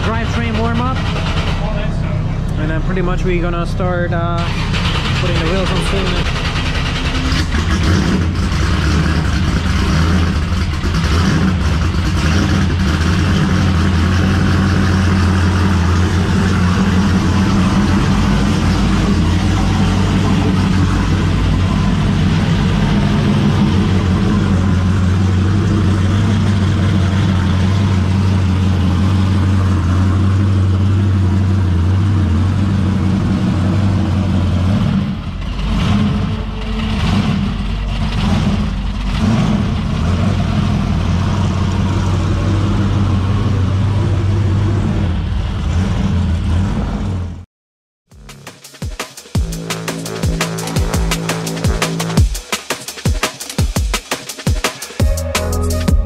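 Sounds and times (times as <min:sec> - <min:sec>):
race car engine idling: 0:00.0 - 0:46.8, 0:49.4 - 0:52.3.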